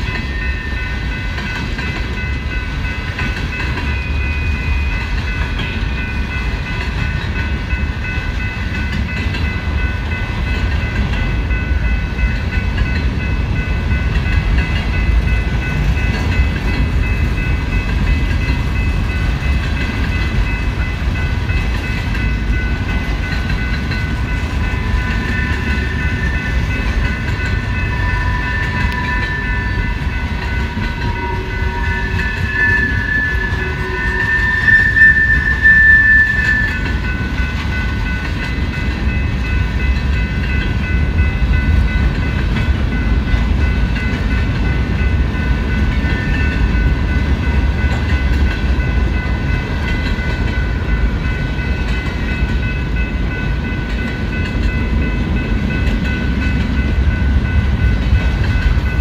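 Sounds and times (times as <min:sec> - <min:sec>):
train wheels rumbling on rail: 0:00.0 - 0:59.0
high-pitched wheel squealing: 0:30.6 - 0:36.9.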